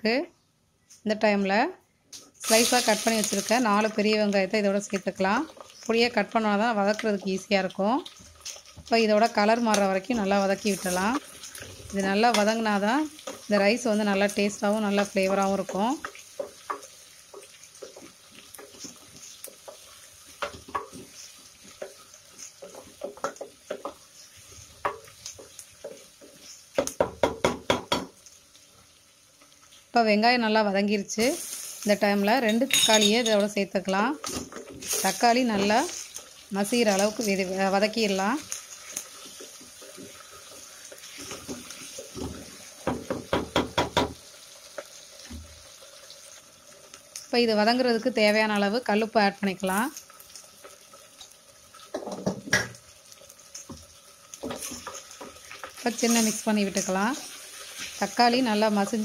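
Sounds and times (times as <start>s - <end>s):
onions sizzling in oil: 2.2s - 59.0s
wooden spatula scraping a pot: 15.0s - 26.9s, 34.2s - 37.4s, 38.1s - 43.2s.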